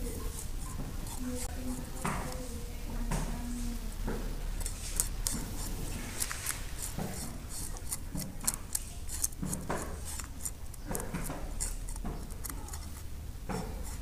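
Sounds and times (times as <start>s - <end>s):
knife scraping fish skin: 4.4s - 14.0s.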